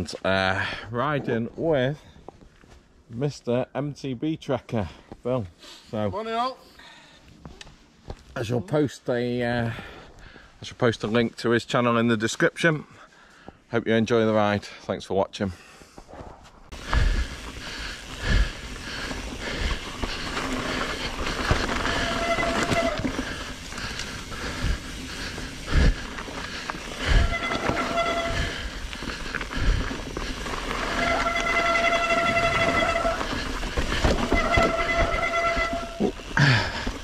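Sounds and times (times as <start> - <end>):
bike tyres rolling on dirt: 16.0 - 37.0
bike knocking over bumps: 19.6 - 37.0.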